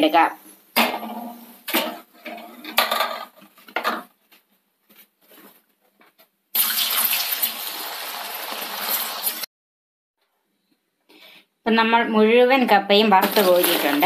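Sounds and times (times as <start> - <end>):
food deep-frying in hot oil: 6.5 - 9.5.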